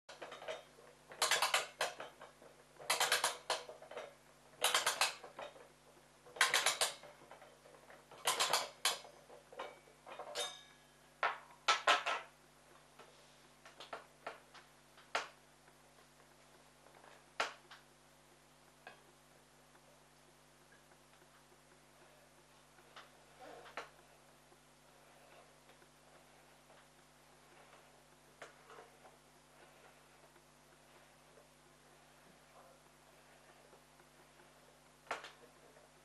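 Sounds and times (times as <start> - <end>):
clockwork ratchet clicking: 2.8 - 3.8, 4.6 - 5.5, 6.3 - 7.1, 8.1 - 9.1.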